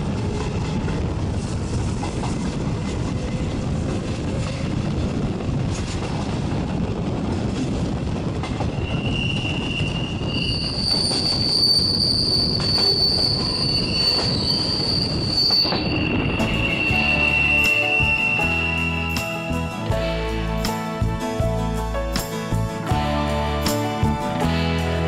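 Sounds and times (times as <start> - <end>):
train rumbling on rails: 0.0 - 25.0
train wheels squealing: 8.6 - 19.7.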